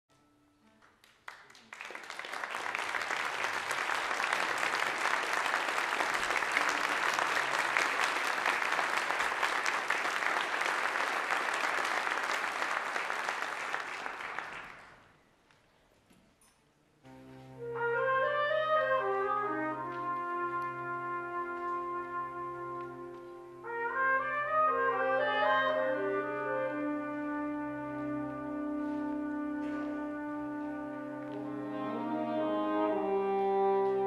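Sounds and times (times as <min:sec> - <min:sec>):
audience applauding: 0:00.8 - 0:15.2.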